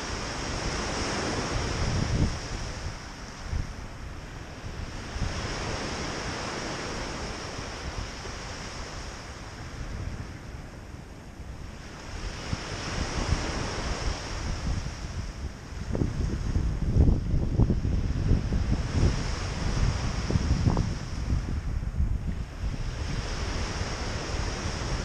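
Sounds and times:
wind rumbling on microphone: 0.0 - 25.0
small waves on gravel beach: 4.9 - 10.0.

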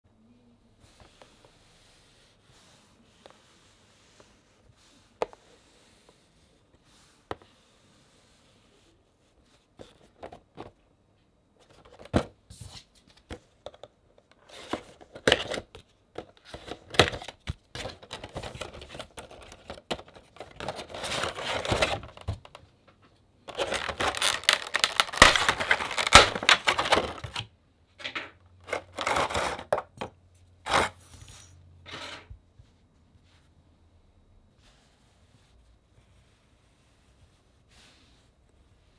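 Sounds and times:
packaging rustling and scraping: 14.3 - 22.6, 23.4 - 27.5, 28.6 - 32.3.

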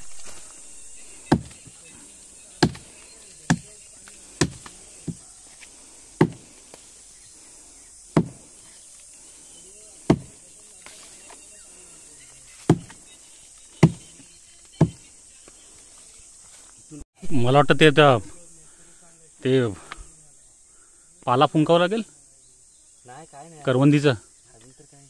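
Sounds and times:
axe chopping wood: 1.3 - 1.7, 2.6 - 5.2, 6.2 - 6.5, 8.1 - 8.5, 10.1 - 10.4, 12.6 - 13.0, 13.8 - 14.0, 14.8 - 15.0.

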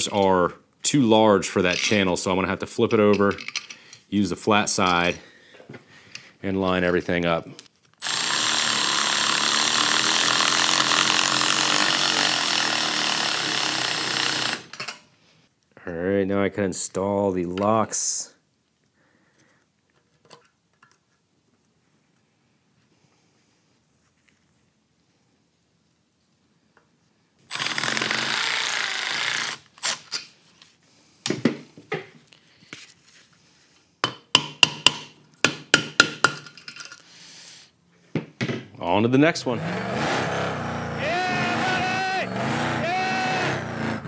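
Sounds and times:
metal tools clicking and knocking: 3.1 - 3.8
electric ratchet motor whine: 8.0 - 14.7.

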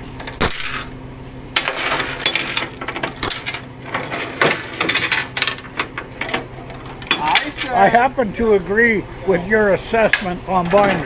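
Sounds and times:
sharp metal clank: 0.3 - 1.0
chain clinking on steel deck: 1.6 - 5.8.

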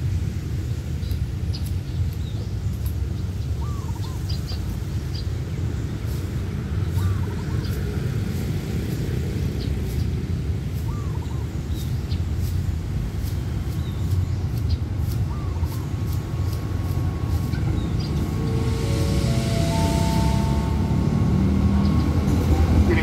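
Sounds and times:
steady low rumble: 12.2 - 23.0.

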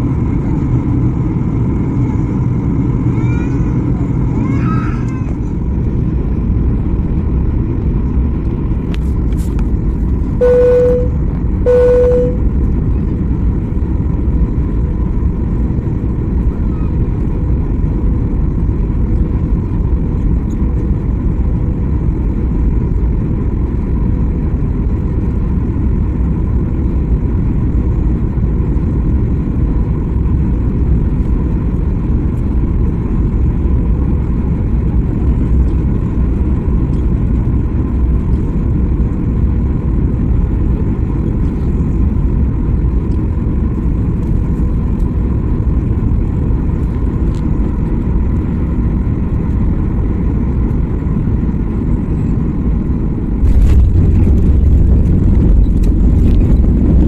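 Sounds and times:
airplane cabin engine roar: 0.0 - 57.0
short beeps: 10.4 - 12.4.

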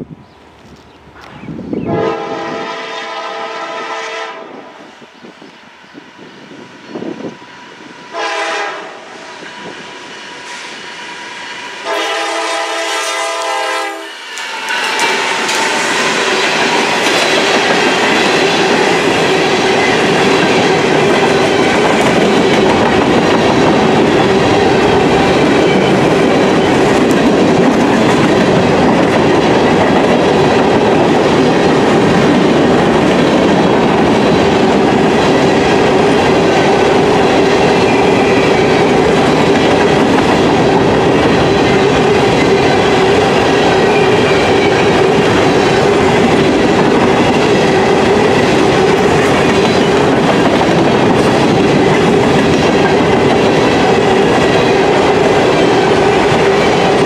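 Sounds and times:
locomotive air horn blasts: 1.9 - 4.7, 8.1 - 9.2, 11.8 - 15.3
wheels clacking over rail joints: 14.3 - 57.0.

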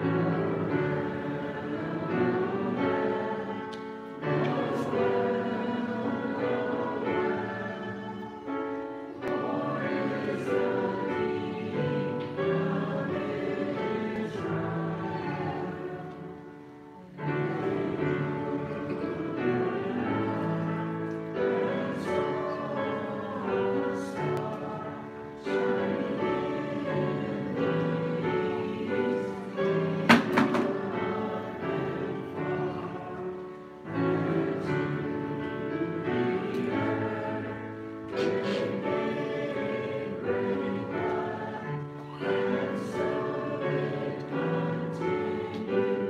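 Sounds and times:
children singing with accompaniment: 0.0 - 46.0
sharp knock: 30.1 - 30.8.

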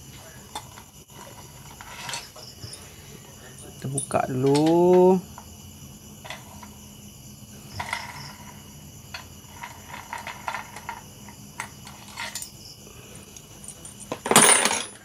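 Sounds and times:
crickets chirring: 0.0 - 15.0
small metallic clicks and clinks: 3.6 - 5.5, 11.6 - 12.6.

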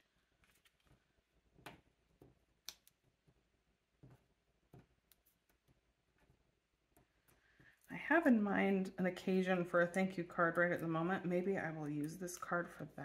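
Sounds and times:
paper stickers handled: 0.1 - 2.9.

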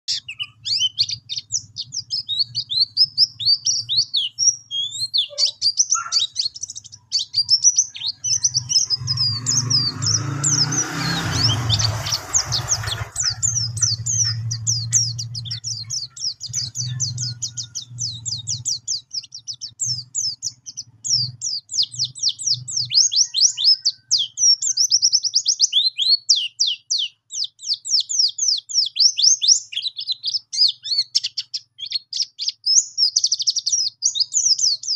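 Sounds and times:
white-eye rolling song: 8.2 - 18.8
low background rumble: 11.4 - 21.7.

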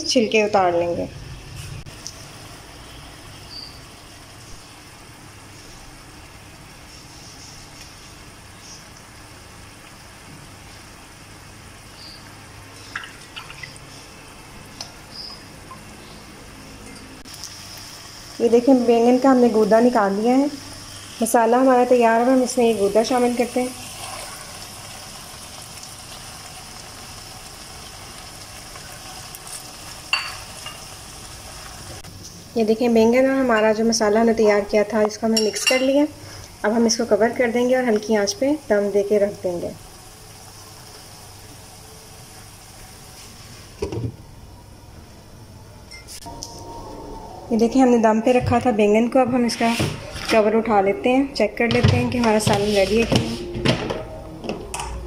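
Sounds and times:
low background hum: 0.0 - 55.0
food sizzling in a frying pan: 17.2 - 34.2, 34.8 - 43.9
spatula scraping: 52.3 - 53.5
eggplant rubbed in water: 52.4 - 53.5.

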